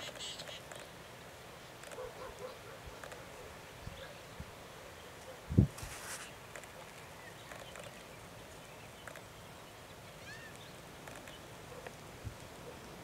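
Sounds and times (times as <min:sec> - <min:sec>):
faint clicks: 0:03.0 - 0:03.3, 0:09.0 - 0:09.3, 0:10.4 - 0:12.6
bird chirp: 0:06.2 - 0:11.5.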